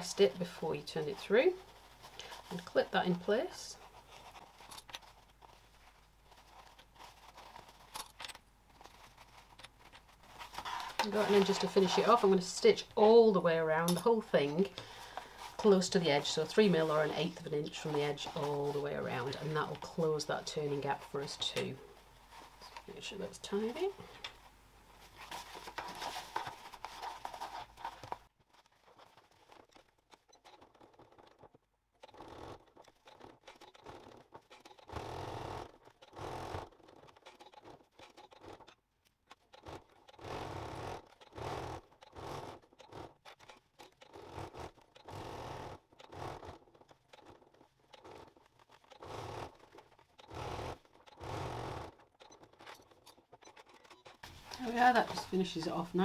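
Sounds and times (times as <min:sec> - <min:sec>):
fabric handling: 0:00.0 - 0:31.6
sewing machine stitching: 0:10.2 - 0:21.7, 0:28.9 - 0:56.0.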